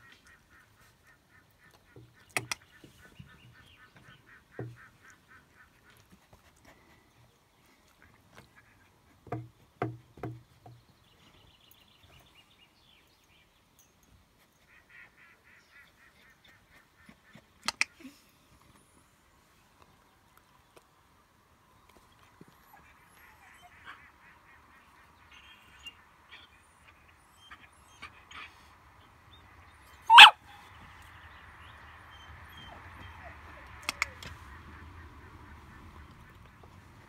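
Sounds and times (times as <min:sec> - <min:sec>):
faint bird calling: 0:29.9 - 0:31.1, 0:32.1 - 0:36.7.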